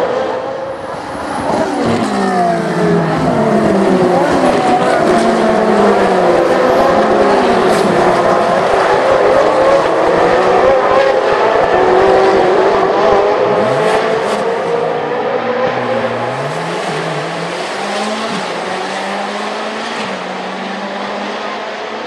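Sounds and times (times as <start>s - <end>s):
lower engine note rising and falling: 0.0s - 22.0s
race car engines revving past: 0.0s - 22.0s.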